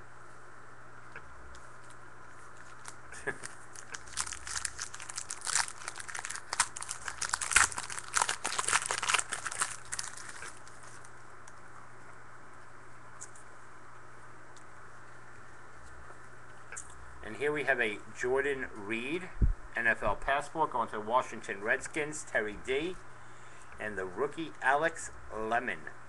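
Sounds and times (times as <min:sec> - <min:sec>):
wrapper torn open and crinkled: 0:02.6 - 0:11.1.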